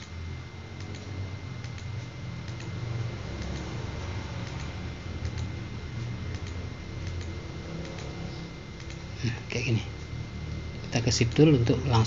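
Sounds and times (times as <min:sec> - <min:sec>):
faint high whine: 0:00.0 - 0:12.0
low hum: 0:00.0 - 0:12.0
computer mouse clicking: 0:00.8 - 0:09.1.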